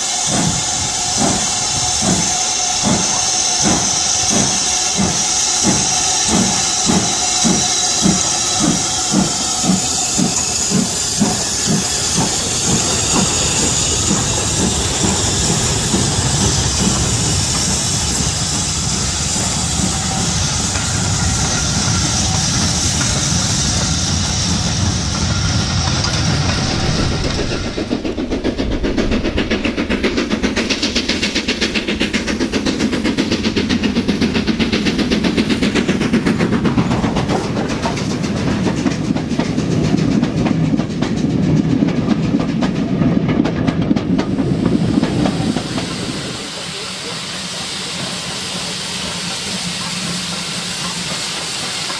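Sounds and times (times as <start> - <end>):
model train wheels clickety-clack: 0.0 - 51.9
steam hiss: 0.0 - 51.9
low rumble: 26.0 - 33.0.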